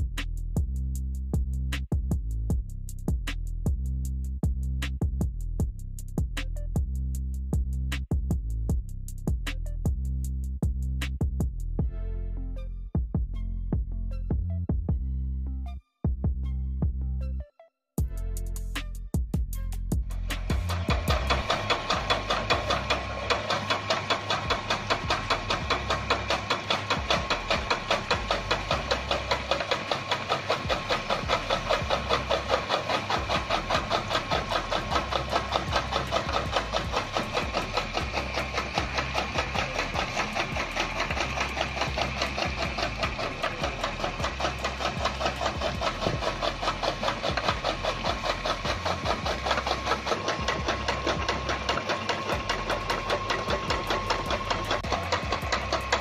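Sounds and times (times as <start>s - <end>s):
chaff cutter chopping fodder: 20.0s - 56.0s
electric motor whine: 20.1s - 56.0s.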